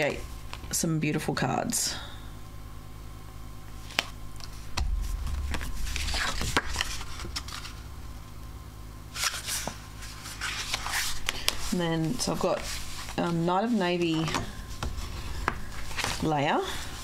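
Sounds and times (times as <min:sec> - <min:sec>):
paper rustling: 0:03.8 - 0:07.8, 0:09.1 - 0:17.0.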